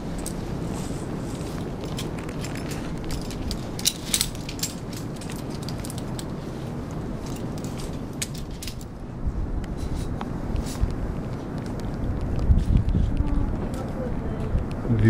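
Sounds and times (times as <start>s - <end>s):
carabiners clinking: 0.0s - 8.9s
steady low rumble: 0.0s - 15.0s.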